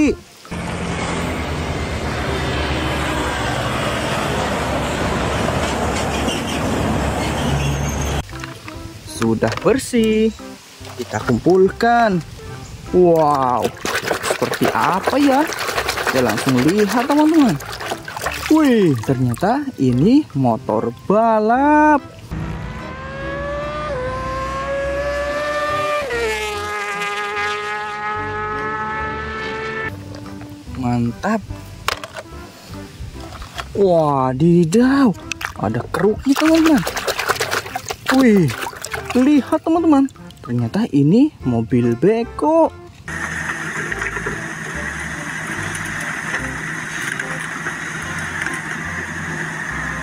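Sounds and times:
superbike engine at high revs: 0.5s - 6.0s, 22.3s - 29.9s, 43.1s - 50.0s
excavator diesel engine running: 43.1s - 50.0s.

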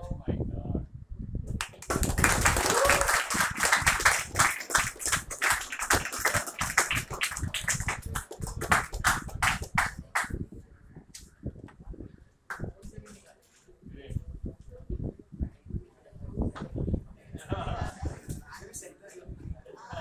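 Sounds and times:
people applauding: 1.6s - 10.4s.

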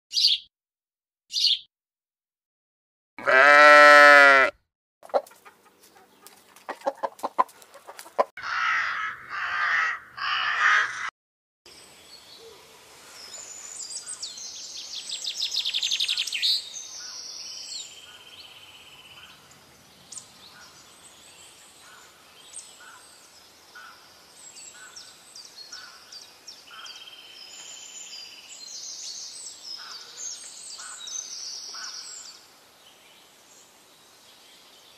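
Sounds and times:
small birds chirping: 0.1s - 0.5s, 1.3s - 1.7s, 5.0s - 8.3s, 11.8s - 34.9s.

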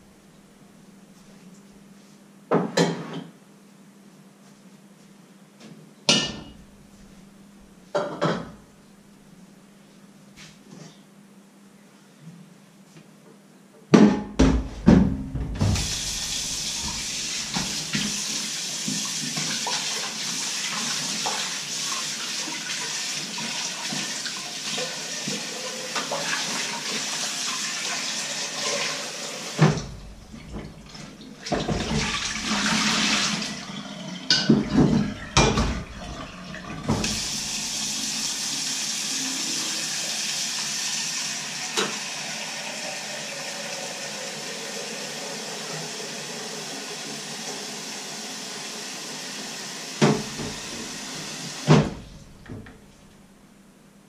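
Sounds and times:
pots and dishes clattering: 7.9s - 8.6s, 34.3s - 37.1s
tap running into a sink: 14.4s - 20.1s, 28.6s - 33.4s, 34.3s - 37.6s, 41.7s - 42.1s, 50.0s - 52.8s.

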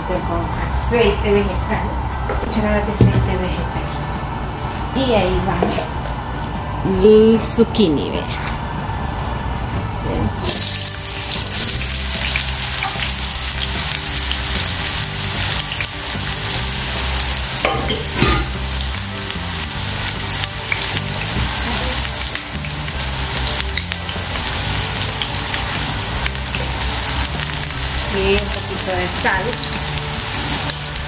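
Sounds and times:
vegetables sizzling in oil: 10.4s - 31.0s.

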